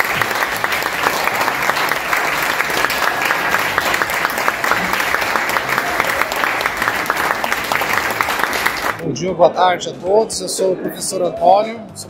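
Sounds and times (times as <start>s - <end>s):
audience clapping: 0.0s - 9.0s.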